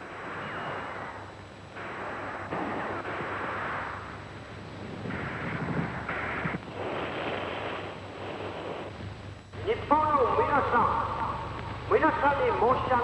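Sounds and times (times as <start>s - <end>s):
explosions and gunfire rumble: 0.0s - 9.0s.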